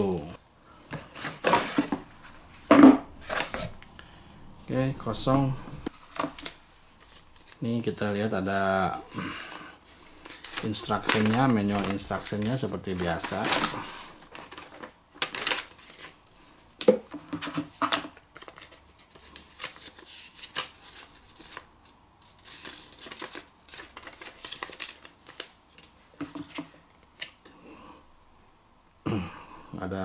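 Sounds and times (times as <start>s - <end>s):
paper and cardboard rustling: 0.9s - 3.8s, 5.9s - 7.8s, 8.4s - 27.4s.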